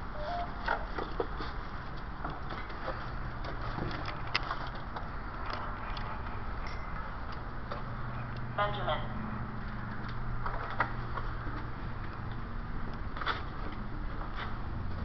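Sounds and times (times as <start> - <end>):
footsteps in concrete tunnel: 9.7 - 15.0.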